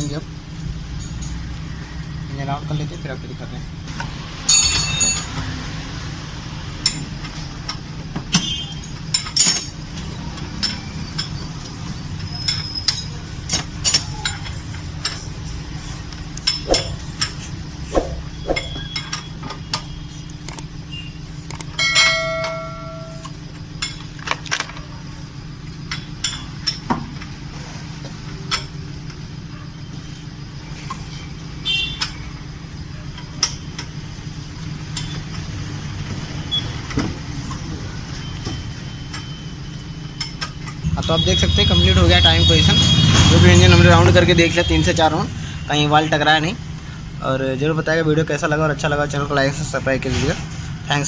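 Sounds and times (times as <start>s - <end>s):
metal ringing: 4.5s - 5.4s, 18.0s - 19.9s, 21.8s - 24.0s.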